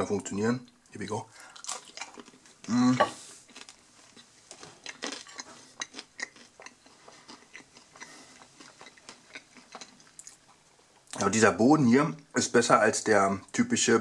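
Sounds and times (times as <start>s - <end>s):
person chewing crunchy crust: 1.5s - 11.1s.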